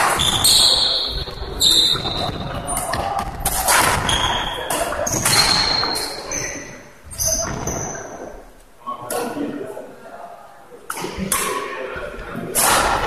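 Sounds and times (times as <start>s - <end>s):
shoe squeaks: 0.0s - 8.3s
racket striking shuttlecock: 2.8s - 6.2s.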